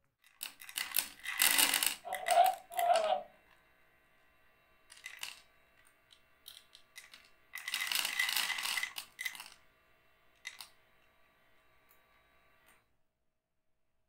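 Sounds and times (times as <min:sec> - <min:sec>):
pet feeder dispensing kibble: 0:00.3 - 0:03.2, 0:04.9 - 0:09.6, 0:10.4 - 0:10.8.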